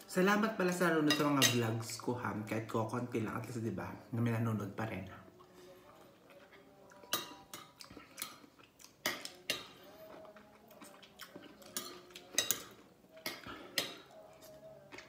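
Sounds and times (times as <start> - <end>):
chewing: 5.4 - 15.0.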